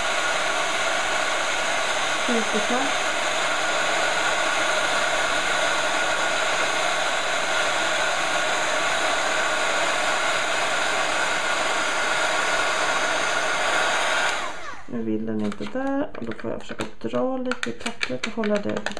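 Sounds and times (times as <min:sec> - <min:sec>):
heat gun blowing air: 0:00.0 - 0:14.9.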